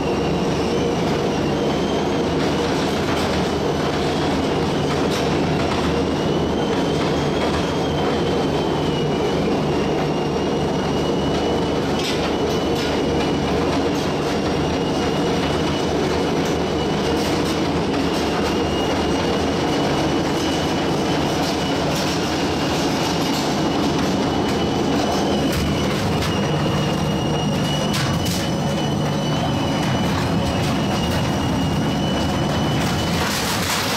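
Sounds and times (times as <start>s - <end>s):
shredder mechanical drone: 12.3s - 33.9s
thin high squeal: 14.0s - 33.9s.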